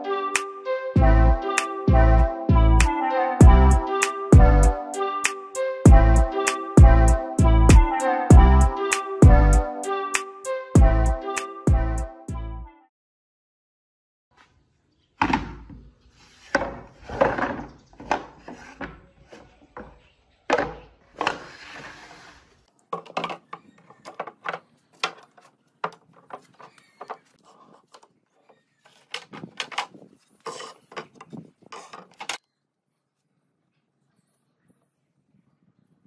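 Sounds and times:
short scraping sounds: 0:21.2 - 0:22.6, 0:30.2 - 0:31.0.

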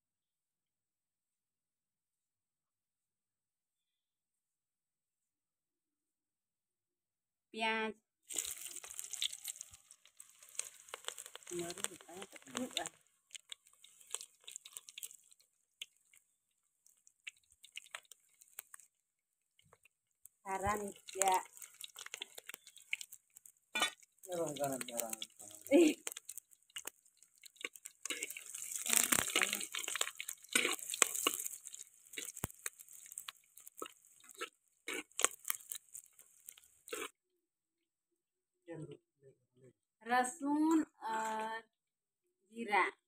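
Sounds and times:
onion frying in hot oil: 0:08.2 - 0:37.2
metal spatula scraping pot: 0:23.7 - 0:26.9, 0:27.5 - 0:33.2.

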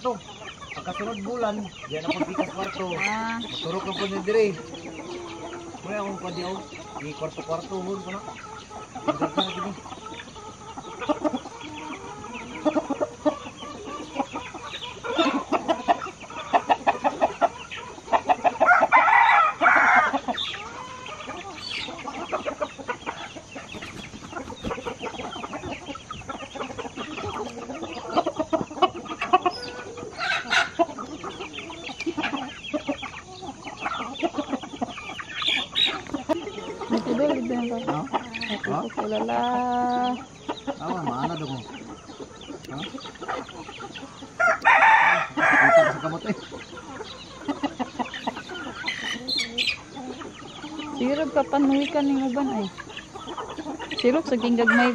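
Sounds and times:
chickens clucking: 0:00.0 - 0:54.9
rooster crowing: 0:18.2 - 0:22.2, 0:44.2 - 0:46.4.

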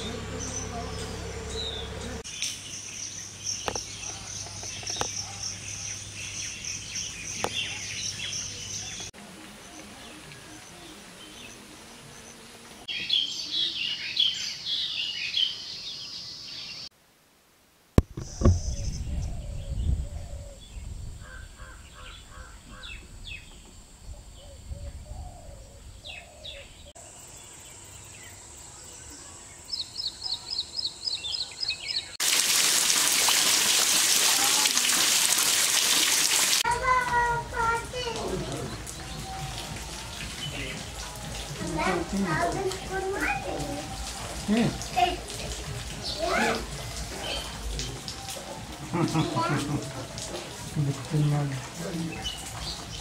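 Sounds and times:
small birds chirping: 0:00.0 - 0:16.9, 0:18.1 - 0:32.2, 0:36.6 - 0:53.0
low rumble: 0:18.2 - 0:21.6.

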